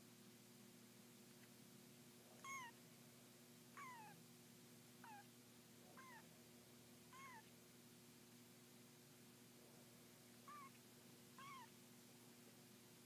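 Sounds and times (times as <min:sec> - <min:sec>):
kittens mewing: 0:02.4 - 0:02.8, 0:03.8 - 0:04.2, 0:05.0 - 0:05.3, 0:06.0 - 0:06.3, 0:07.1 - 0:07.5, 0:10.5 - 0:10.8, 0:11.4 - 0:11.7.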